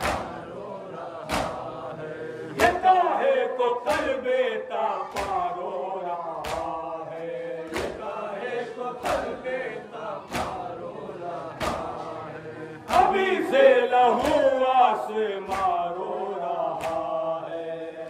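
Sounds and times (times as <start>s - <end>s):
chest-beating slaps: 0.0s - 0.4s, 1.2s - 1.8s, 3.9s - 4.2s, 5.1s - 5.5s, 6.4s - 6.8s, 7.6s - 8.1s, 10.2s - 10.7s, 11.5s - 12.1s, 12.9s - 13.2s, 14.2s - 14.5s, 15.5s - 15.9s, 16.7s - 17.2s
men chanting in unison: 0.0s - 18.0s.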